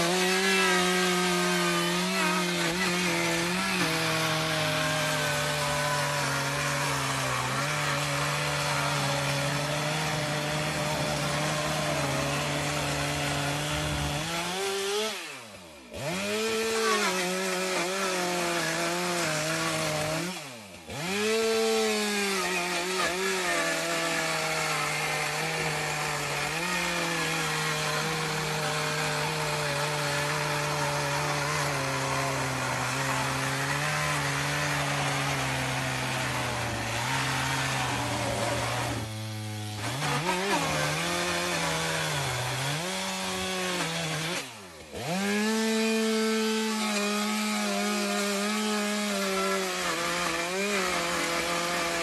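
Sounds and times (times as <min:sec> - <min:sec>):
power saw cutting and revving: 0:00.0 - 0:52.0.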